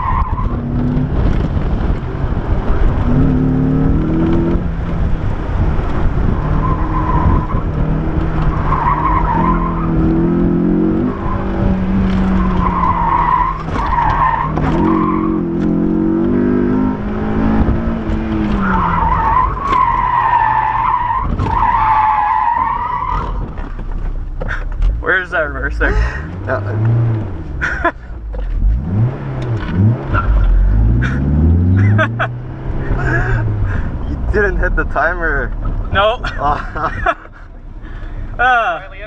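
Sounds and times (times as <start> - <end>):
low wind rumble: 0.0 - 38.4
car engine revving: 0.0 - 39.0
tyres squealing: 11.1 - 15.6, 18.3 - 23.9.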